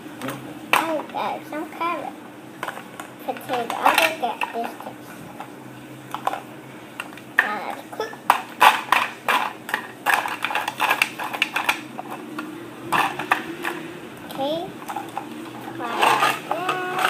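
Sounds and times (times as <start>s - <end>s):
plastic toys clattering against pot: 0.2s - 1.2s, 2.6s - 5.5s, 6.1s - 12.2s, 12.9s - 17.0s.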